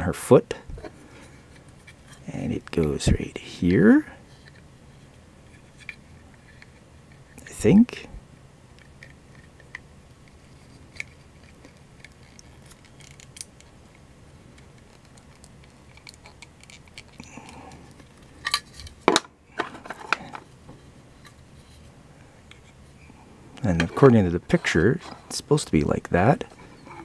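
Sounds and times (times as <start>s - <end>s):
plastic parts clicking and scraping: 8.8s - 20.5s, 23.6s - 25.4s.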